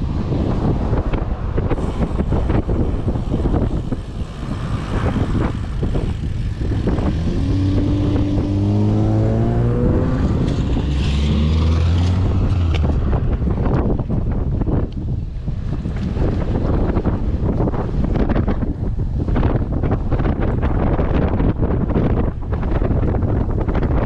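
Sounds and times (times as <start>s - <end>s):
wind buffeting microphone: 0.0s - 24.0s
car engine accelerating: 3.5s - 13.9s.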